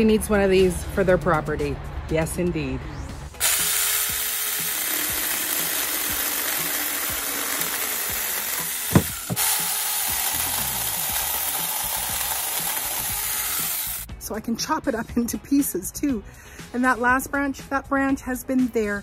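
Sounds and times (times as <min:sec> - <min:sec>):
chainsaw cutting branch: 0:03.4 - 0:14.1
short knock: 0:09.0 - 0:09.4.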